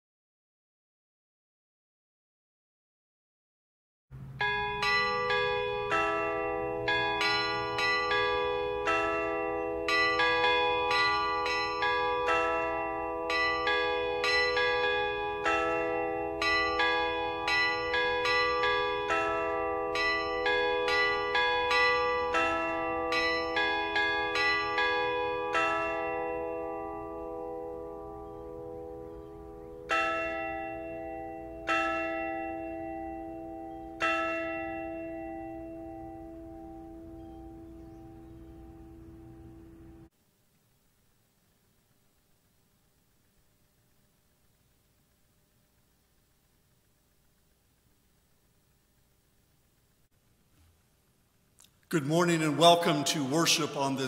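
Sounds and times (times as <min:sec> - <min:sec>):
church bells ringing: 0:04.2 - 0:40.1, 0:52.0 - 0:54.0.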